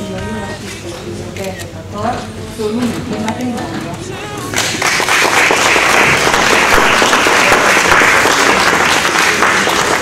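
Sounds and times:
crowd applauding: 0:04.5 - 0:10.0.

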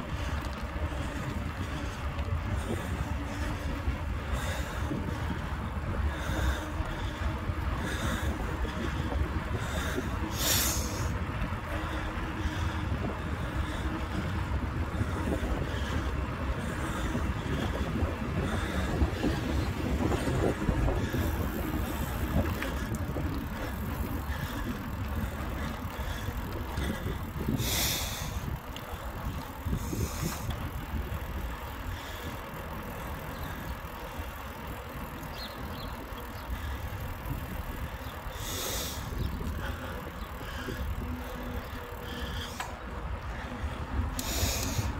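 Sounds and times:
bicycle tyres rumbling on road: 0:00.0 - 0:44.9
wind buffeting microphone: 0:00.0 - 0:44.9.

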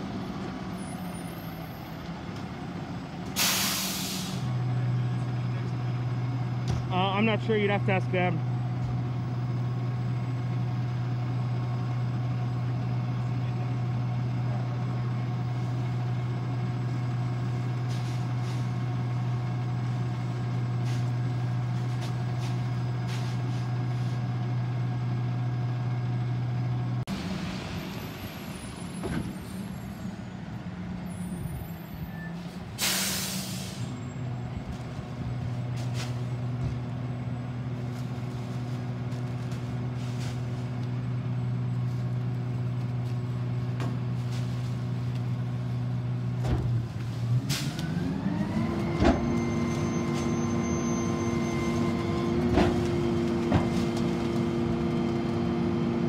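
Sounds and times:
garbage truck engine hum: 0:00.0 - 0:56.0
air brake hiss: 0:03.4 - 0:04.5, 0:32.8 - 0:33.9.

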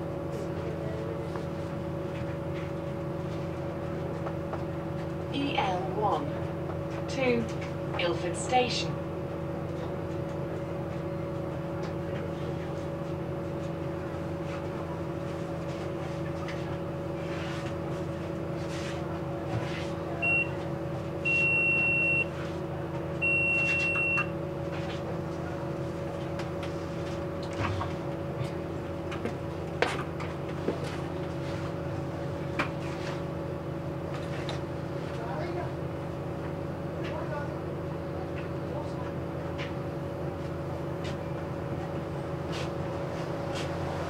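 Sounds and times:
bus engine idling: 0:00.0 - 0:44.0
electronic warning beeps: 0:20.2 - 0:20.6, 0:21.2 - 0:22.3, 0:23.2 - 0:24.3.

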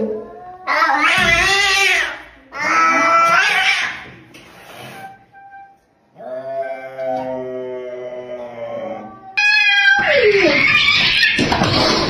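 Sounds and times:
cat screeching: 0:00.6 - 0:04.1, 0:09.4 - 0:12.0
cat yowling low: 0:09.0 - 0:11.4.

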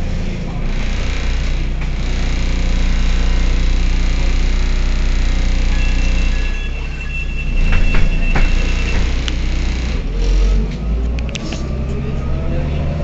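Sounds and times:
bus engine humming: 0:00.0 - 0:13.0
high-pitched beep: 0:05.6 - 0:09.3
clicks and knocks: 0:07.6 - 0:09.4.

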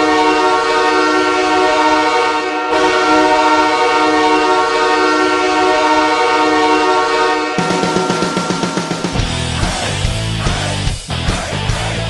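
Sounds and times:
air horn chord: 0:00.0 - 0:09.6.

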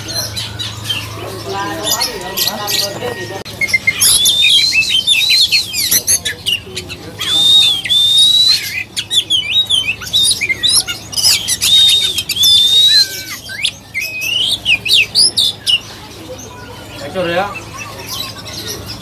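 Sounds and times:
bird singing whistles: 0:03.6 - 0:15.8.

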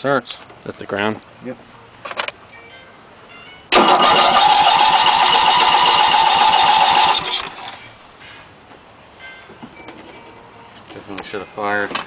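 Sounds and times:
electric starter cranking engine: 0:03.7 - 0:07.8.

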